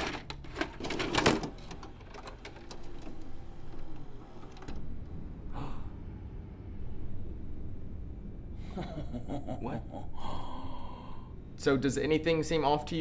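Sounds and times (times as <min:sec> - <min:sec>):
tape player clicking and whirring: 0:00.0 - 0:05.2.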